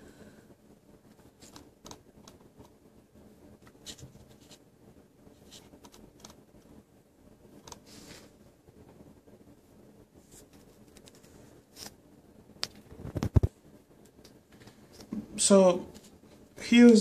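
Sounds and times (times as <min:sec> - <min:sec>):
low room hum: 0:00.0 - 0:17.0
computer mouse clicks: 0:01.4 - 0:02.4, 0:05.8 - 0:06.4.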